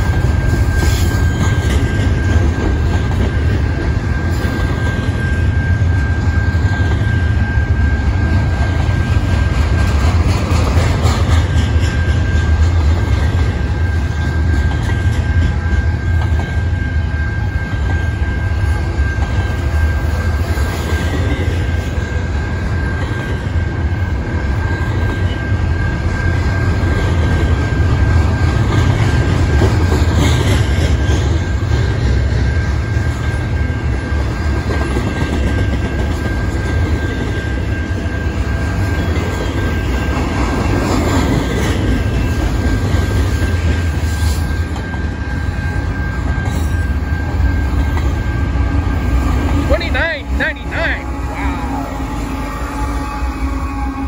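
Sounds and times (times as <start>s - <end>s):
high whine: 0.0s - 30.1s, 41.8s - 54.0s
train wheels rumbling on rail: 0.0s - 54.0s.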